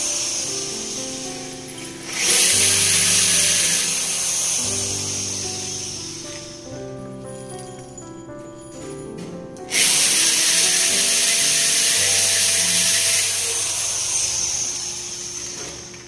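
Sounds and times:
electric drill boring into wall: 0.0 - 6.4, 9.7 - 16.0
background music: 0.0 - 15.0.

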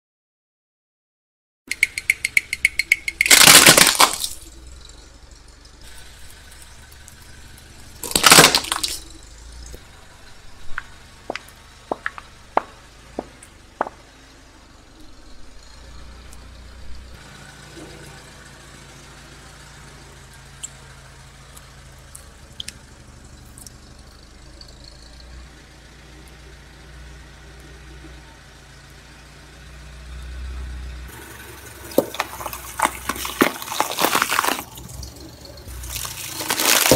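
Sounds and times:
tyre crushing plastic toy: 3.1 - 4.4, 8.0 - 9.0, 31.8 - 34.9, 35.7 - 36.9
plastic cracking and snapping: 3.2 - 4.4, 8.0 - 9.0, 31.9 - 34.7, 35.9 - 36.9
soft squishing: 31.9 - 34.9.

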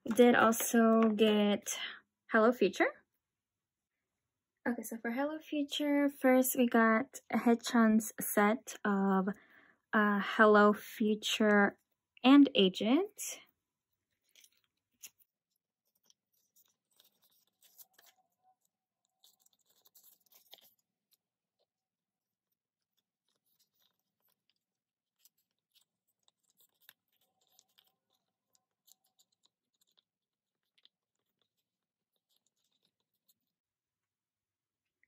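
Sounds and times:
faint plastic sleeve crinkles: 14.0 - 34.2.

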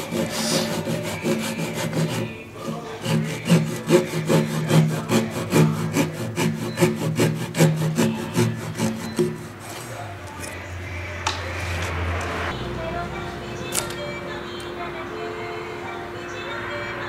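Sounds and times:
handsaw rasping through wood: 0.0 - 10.0.

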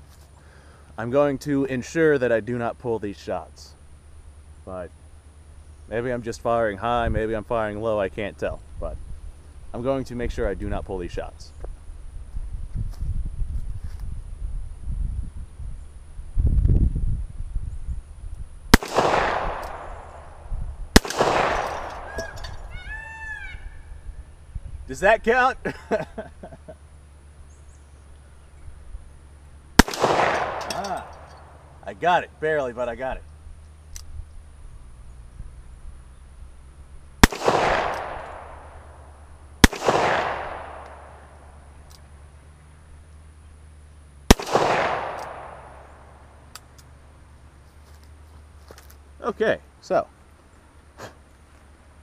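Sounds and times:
revolver shots with echo: 18.8 - 22.5, 29.8 - 31.6, 37.2 - 38.7, 39.6 - 41.2, 44.3 - 45.9.

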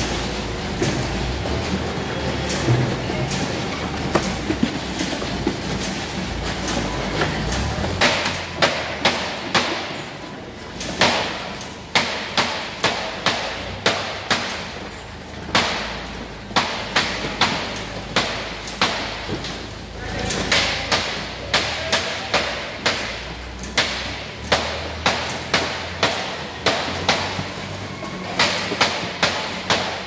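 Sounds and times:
machinery rumble: 0.0 - 11.9.

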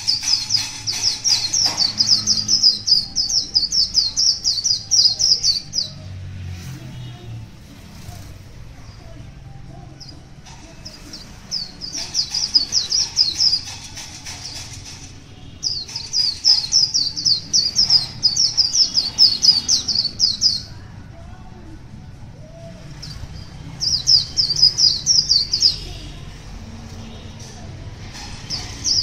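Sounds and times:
bird singing high slurred notes: 0.0 - 6.2, 15.4 - 20.8, 22.3 - 27.5
passing traffic rumble: 0.0 - 29.0.

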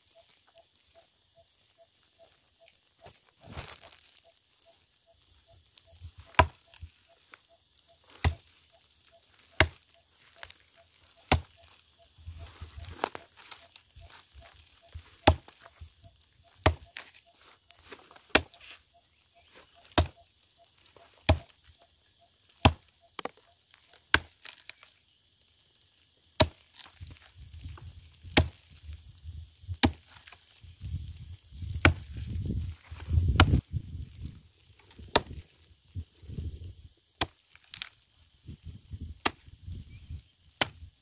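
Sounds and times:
axe chopping into wood: 6.3 - 6.6, 8.1 - 8.4, 9.6 - 9.8, 11.2 - 11.5, 15.2 - 15.6, 16.6 - 17.0, 18.2 - 18.6, 19.8 - 20.2, 21.3 - 21.5, 22.6 - 23.3, 24.1 - 24.6, 26.4 - 26.8, 28.4 - 28.6, 29.8 - 30.1, 31.8 - 32.1, 33.3 - 33.6, 35.0 - 35.4, 39.2 - 39.4, 40.6 - 40.8.

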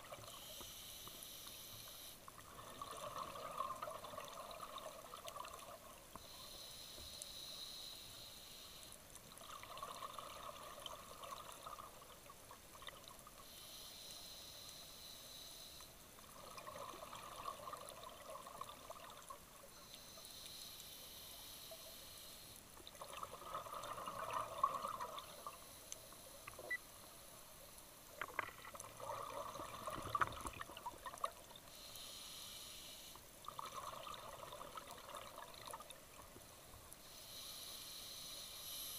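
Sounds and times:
regulator inhale hiss: 0.2 - 2.2, 6.2 - 9.0, 13.3 - 16.0, 19.7 - 22.7, 25.2 - 28.0, 31.7 - 33.3, 37.0 - 38.9
bubbling exhale gurgle: 2.4 - 5.9, 9.4 - 12.2, 16.3 - 19.3, 22.9 - 25.6, 28.2 - 31.5, 33.4 - 36.2.

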